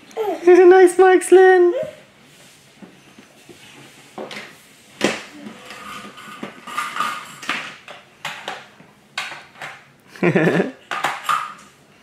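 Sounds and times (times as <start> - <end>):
toy cars clacking on plastic track: 5.6 - 9.8, 10.9 - 11.7.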